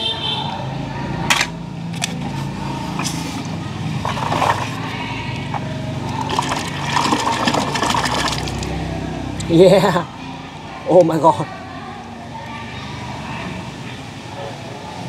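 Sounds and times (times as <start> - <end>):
hand splashing through water: 6.2 - 8.8.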